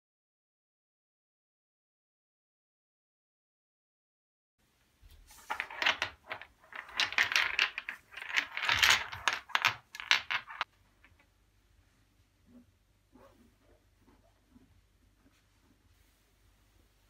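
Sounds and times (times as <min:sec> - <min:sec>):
massage stones clacking together: 0:05.4 - 0:11.2.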